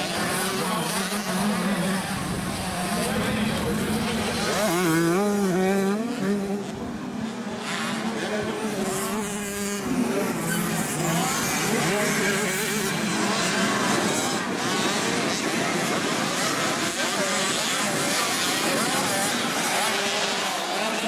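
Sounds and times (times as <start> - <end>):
motocross bikes racing: 0.0 - 21.0.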